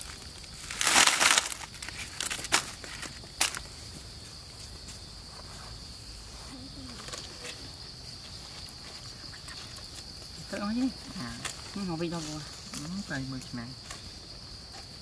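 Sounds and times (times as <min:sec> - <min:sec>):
sharp crackle: 0:00.0 - 0:03.7.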